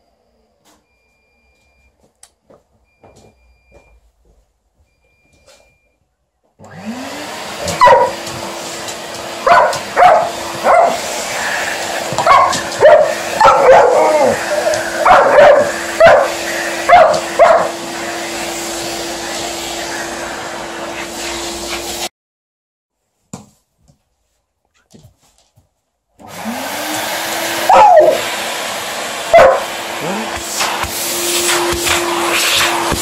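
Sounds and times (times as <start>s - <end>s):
vacuum cleaner running: 6.6s - 22.1s, 26.2s - 33.0s
dog barking: 7.6s - 8.3s, 9.4s - 11.2s, 12.1s - 17.8s, 27.6s - 28.3s, 29.3s - 29.8s.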